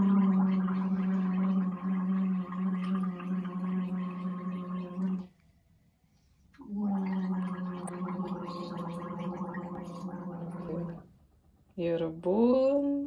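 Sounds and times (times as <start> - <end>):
woman gargling: 0.0 - 5.3, 6.6 - 11.0.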